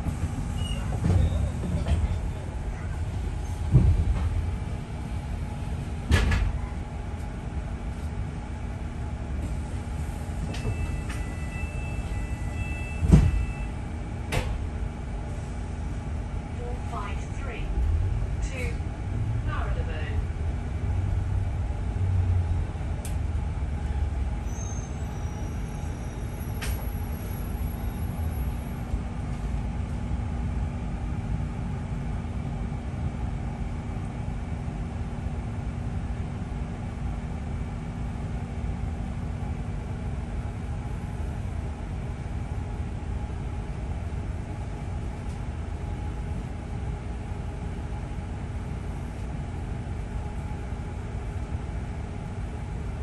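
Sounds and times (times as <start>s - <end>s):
constant hum: 0.0s - 24.4s
bus engine and road rumble: 0.0s - 53.0s.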